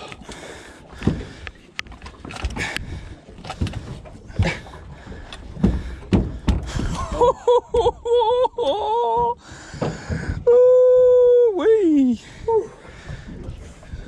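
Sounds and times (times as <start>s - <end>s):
fishing gear knocking on metal boat: 4.4s - 7.2s.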